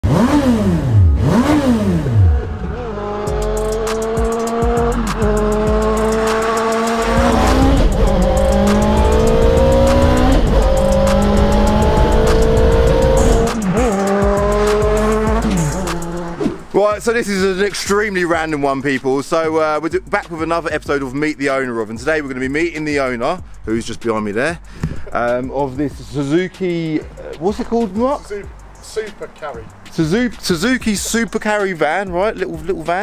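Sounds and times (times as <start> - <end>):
motorcycle engine revving and accelerating: 0.0 - 16.7.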